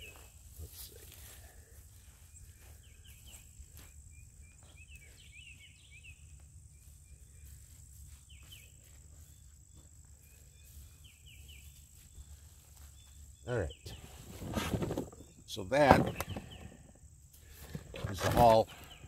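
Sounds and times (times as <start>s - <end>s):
bird chirps: 2.0s - 17.0s.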